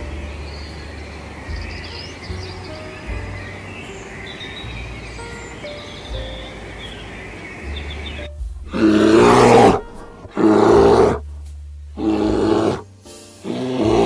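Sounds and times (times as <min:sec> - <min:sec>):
background music: 0:00.0 - 0:14.0
animal calling: 0:07.3 - 0:11.2, 0:12.0 - 0:12.8, 0:13.4 - 0:14.0.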